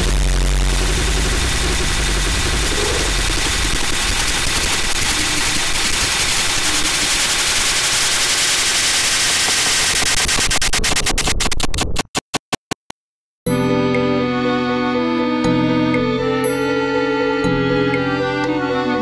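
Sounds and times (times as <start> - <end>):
distorted static noise music: 0.0 - 12.1.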